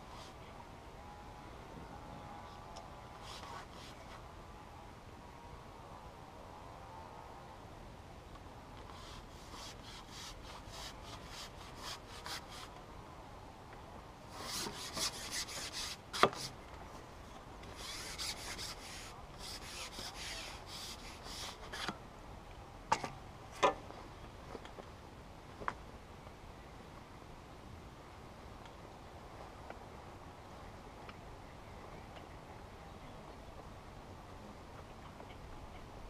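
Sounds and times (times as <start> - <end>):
fishing pole scraping against clothing: 3.2 - 4.2, 8.9 - 12.7, 14.4 - 16.5, 17.7 - 21.9.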